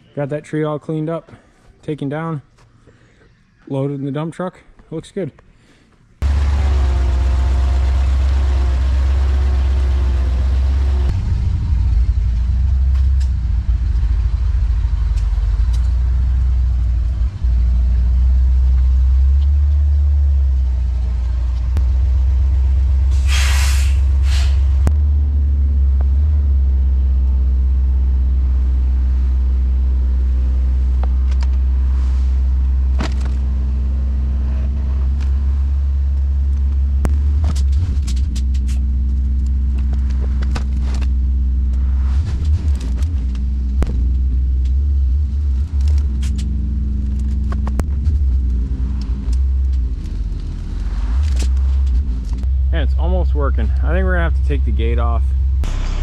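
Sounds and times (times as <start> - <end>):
truck engine rumbling: 6.2 - 56.0
air hissing: 23.1 - 24.8.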